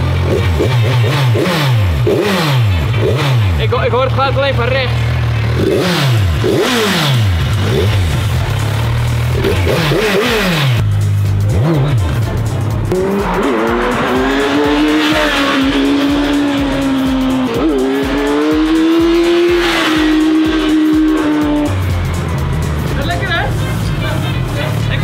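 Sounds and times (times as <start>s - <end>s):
motorcycle engine revving: 0.0s - 25.0s
background music with beat: 5.1s - 25.0s.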